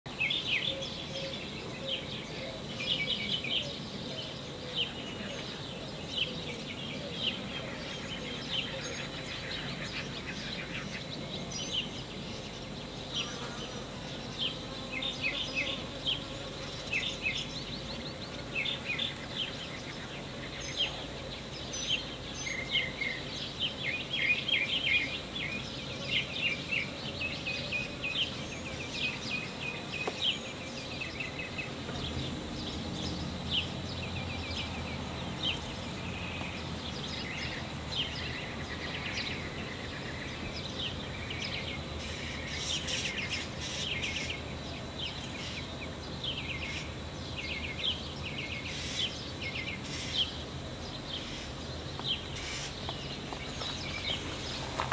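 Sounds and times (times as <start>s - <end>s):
honeybee buzzing: 12.6s - 21.2s.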